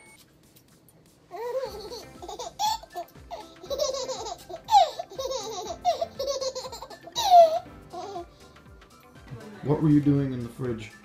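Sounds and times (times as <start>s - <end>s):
baby giggling: 1.3s - 8.4s.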